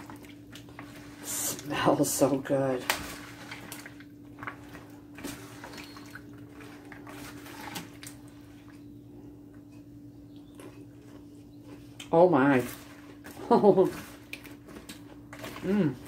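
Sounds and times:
wet squishing and sloshing: 0.0s - 9.7s, 10.3s - 16.0s
faint steady hum: 0.0s - 16.0s
spatula scraping plastic bowl: 2.9s - 8.1s.

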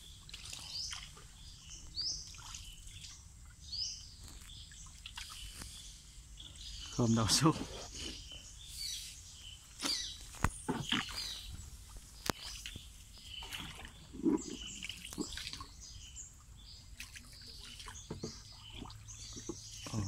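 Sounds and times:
birds chirping: 0.0s - 20.0s
paddle splashing in water: 9.8s - 20.0s.

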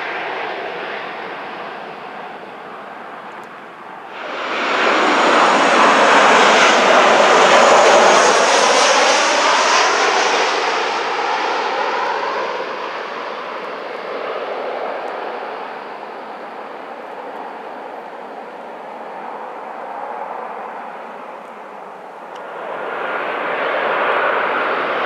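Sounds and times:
jet airliner passing overhead: 0.0s - 25.0s.

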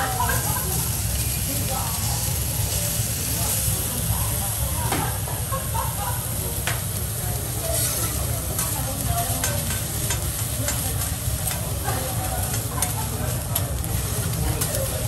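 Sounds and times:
food sizzling on a griddle: 0.0s - 15.0s
metal spatula scraping a griddle: 7.4s - 14.8s.

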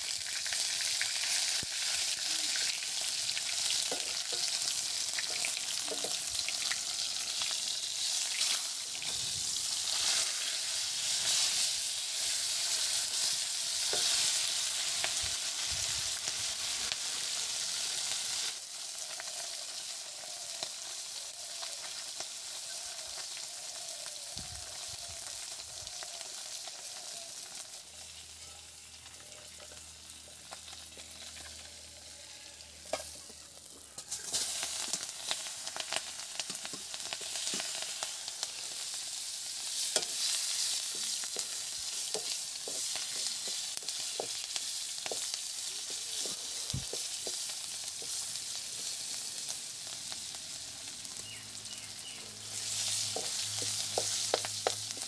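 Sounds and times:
fish sizzling in hot oil: 0.0s - 55.0s.

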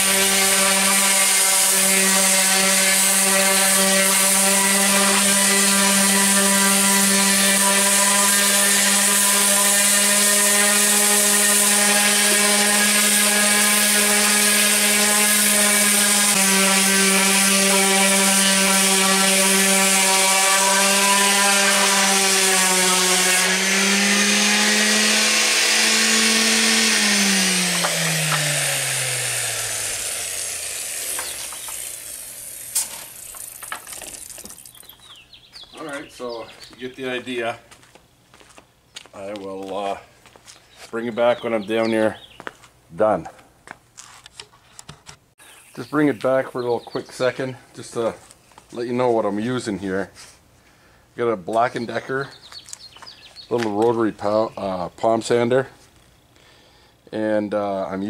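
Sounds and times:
palm sander running: 0.0s - 35.2s.

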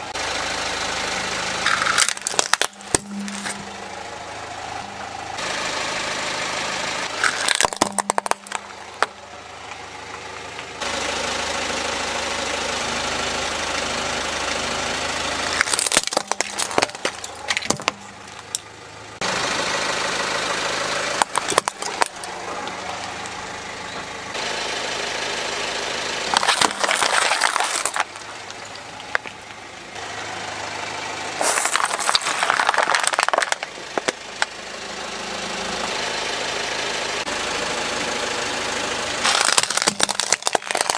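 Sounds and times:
car engine idling: 0.0s - 40.9s
tyre crushing plastic toys and bottles: 1.6s - 3.7s, 7.2s - 9.1s, 15.6s - 18.6s, 21.1s - 23.3s, 26.3s - 29.6s, 31.4s - 34.5s, 39.2s - 40.9s.

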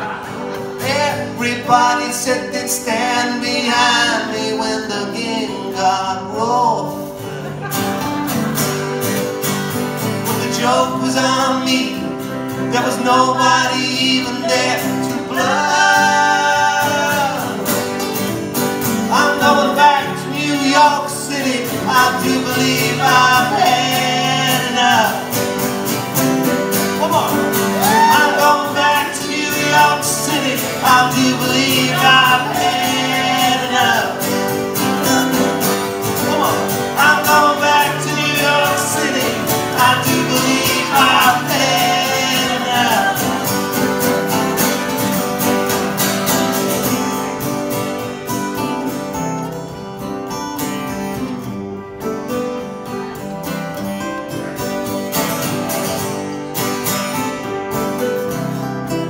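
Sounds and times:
men singing in harmony: 0.0s - 7.2s, 10.2s - 18.1s, 19.0s - 25.8s, 27.6s - 44.7s
acoustic guitars: 0.0s - 59.0s
piano: 0.0s - 59.0s.

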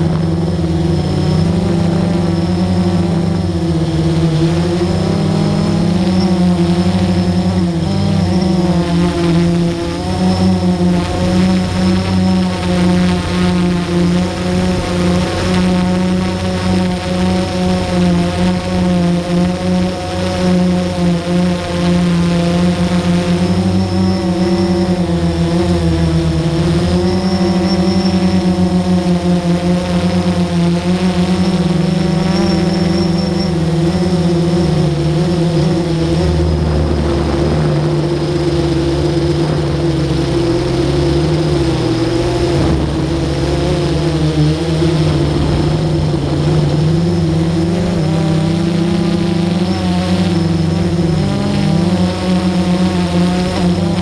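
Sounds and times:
aircraft motor hum: 0.0s - 54.0s.

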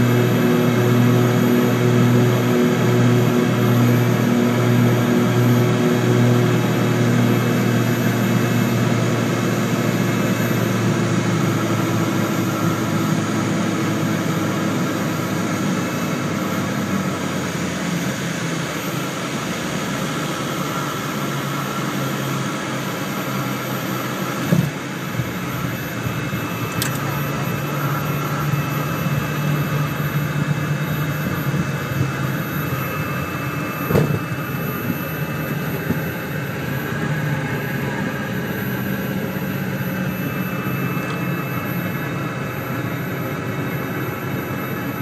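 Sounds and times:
twin piston engines droning: 24.2s - 45.0s.

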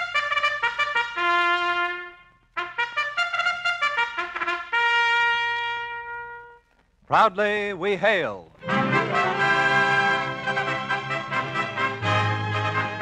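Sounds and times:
brass fanfare with trumpets: 0.0s - 6.7s, 8.6s - 13.0s.

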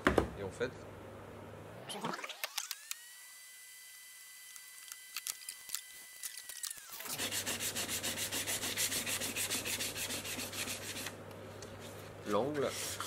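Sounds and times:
hand sanding wood: 7.1s - 11.2s, 12.4s - 13.0s.

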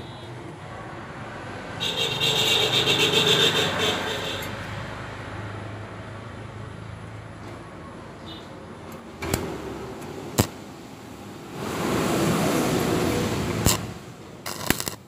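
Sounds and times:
metal tube scraping on concrete: 12.8s - 15.0s.

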